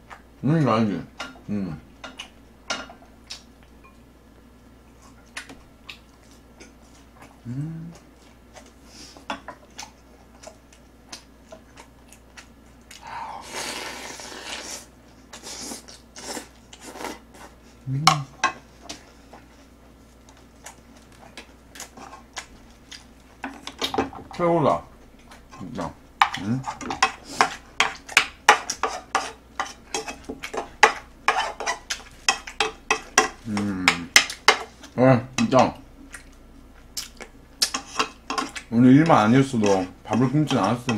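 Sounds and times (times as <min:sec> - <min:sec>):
spoon scraping a frying pan: 0:26.3 - 0:34.8, 0:37.7 - 0:38.6
wet chewing: 0:36.0 - 0:38.7.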